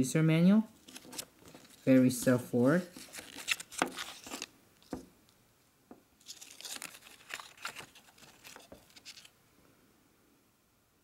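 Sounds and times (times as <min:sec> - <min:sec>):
paper leaflet rustling: 0:00.8 - 0:05.0, 0:06.2 - 0:09.3.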